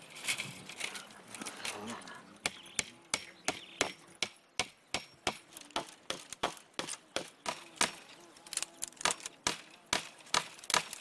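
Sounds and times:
hammering on wood: 0:02.4 - 0:08.0.

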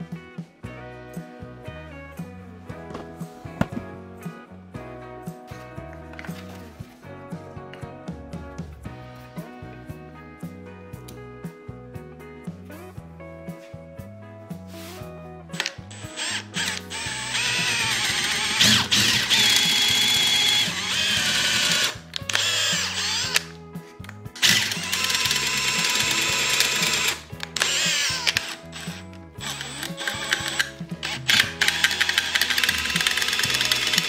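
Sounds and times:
background music: 0:00.0 - 0:34.0
drill boring into wood: 0:15.6 - 0:23.6, 0:24.4 - 0:34.0.

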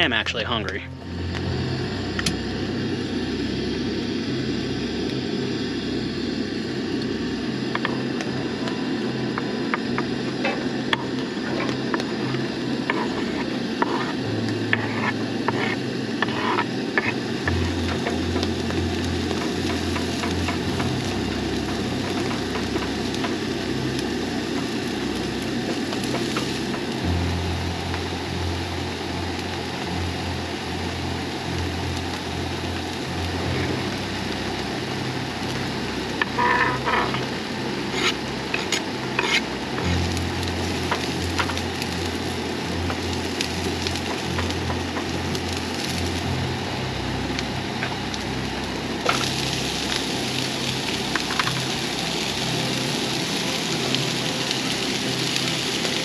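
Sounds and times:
onions sizzling in frying pan: 0:01.0 - 0:56.0
spatula scraping and tapping pan: 0:09.4 - 0:18.5, 0:36.2 - 0:37.3, 0:37.9 - 0:39.5
knife scraping cutting board: 0:11.4 - 0:17.2, 0:37.9 - 0:39.5.

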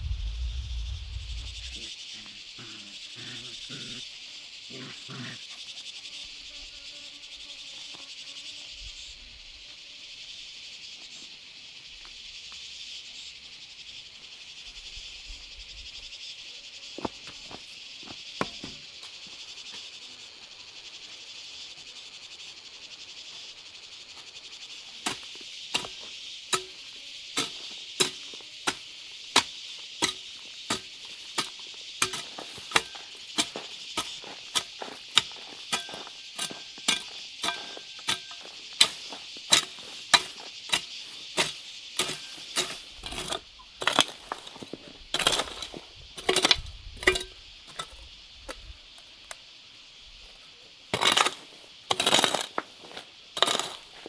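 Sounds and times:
insects chirring: 0:00.0 - 0:54.0
hand tool striking: 0:27.4 - 0:28.8, 0:29.4 - 0:44.1.

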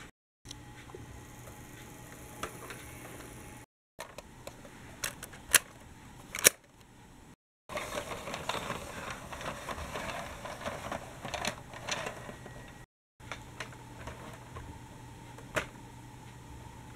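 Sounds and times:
plastic toy door clicks and snaps: 0:06.3 - 0:06.6
toy tram wheels rattling on track: 0:07.7 - 0:12.4.

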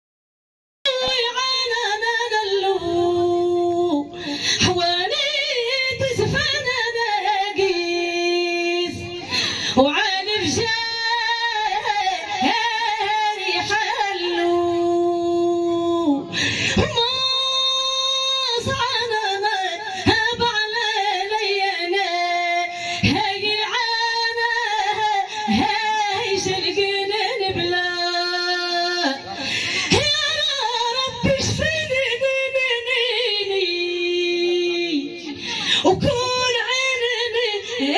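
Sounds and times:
woman singing with vibrato: 0:00.9 - 0:37.9.

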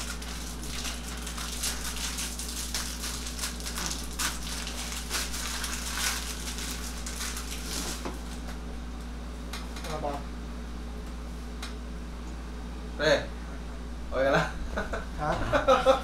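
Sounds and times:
bandage wrapper crinkling: 0:00.0 - 0:08.5
steady low hum: 0:00.0 - 0:16.0.

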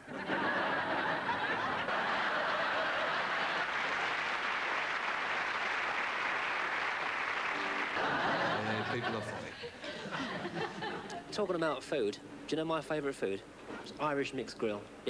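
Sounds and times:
audience laughing: 0:00.0 - 0:04.4, 0:07.9 - 0:11.3
audience applauding: 0:01.1 - 0:09.3.

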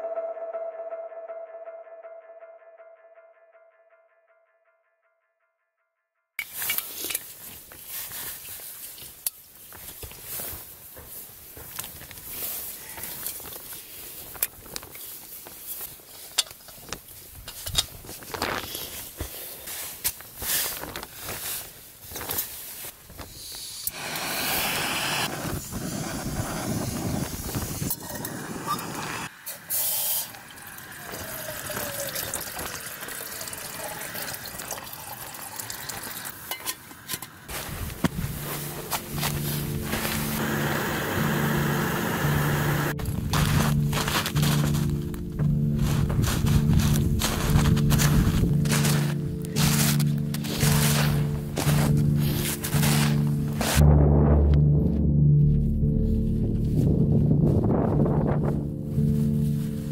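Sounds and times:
camping stove clicks and rustles: 0:06.4 - 0:10.4, 0:13.0 - 0:23.3
water pouring into metal pot: 0:29.8 - 0:36.8.

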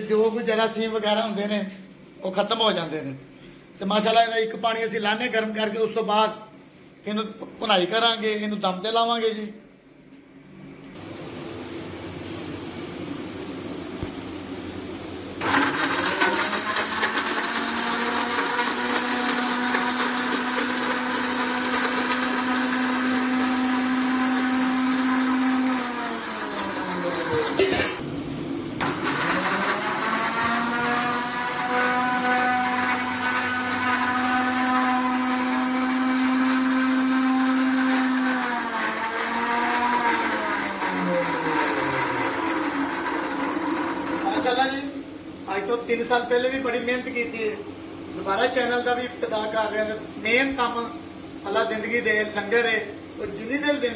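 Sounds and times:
mixer grinder motor whining: 0:15.4 - 0:28.0, 0:28.8 - 0:44.6.

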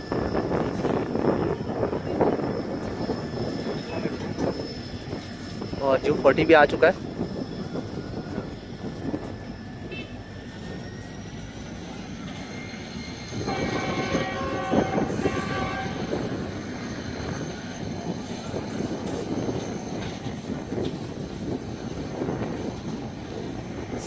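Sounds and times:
high wheel squeal: 0:00.0 - 0:24.0
locomotive horn: 0:13.5 - 0:16.3.

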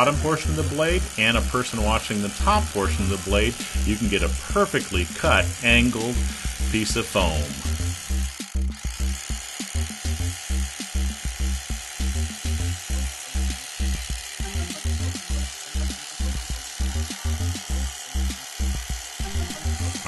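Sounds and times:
electric knife sawing foam: 0:00.0 - 0:20.0
background music with bass beat: 0:02.8 - 0:20.0.

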